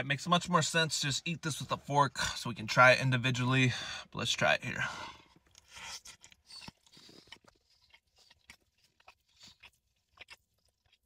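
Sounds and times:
chewing sandwich close up: 5.2 - 11.0.

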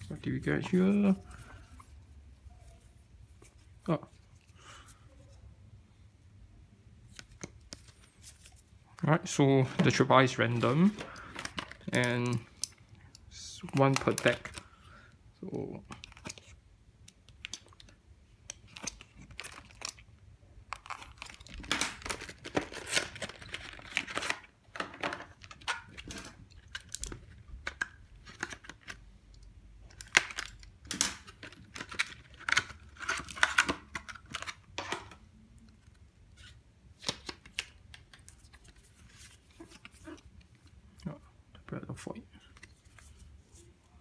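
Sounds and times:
cellophane crinkling and tearing: 18.6 - 20.0, 20.7 - 24.5.

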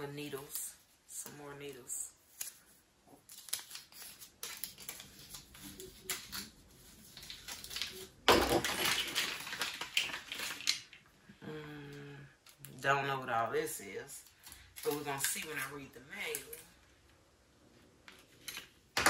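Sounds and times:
packaging rustle: 3.2 - 11.0.

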